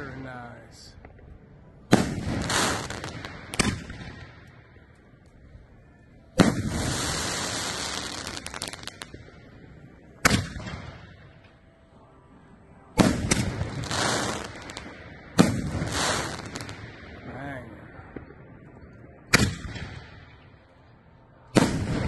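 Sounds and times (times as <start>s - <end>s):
firework crackles: 0.0s - 5.4s, 6.2s - 12.2s, 12.9s - 20.7s, 21.4s - 22.0s
firework booms: 1.9s - 4.4s, 6.4s - 9.4s, 10.2s - 11.4s, 13.0s - 20.4s, 21.5s - 22.0s.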